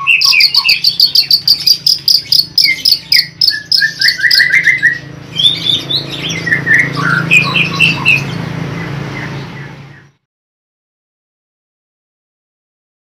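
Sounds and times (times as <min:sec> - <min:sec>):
bird singing: 0:00.0 - 0:10.3.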